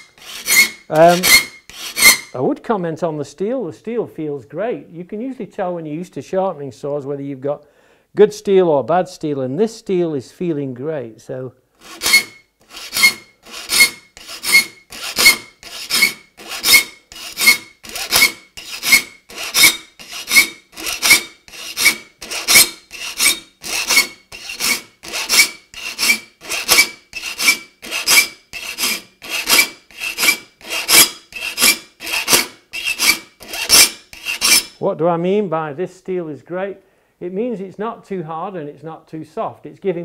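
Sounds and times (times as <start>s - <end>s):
file rasping on saw teeth: 0.0s - 2.4s, 11.8s - 34.8s.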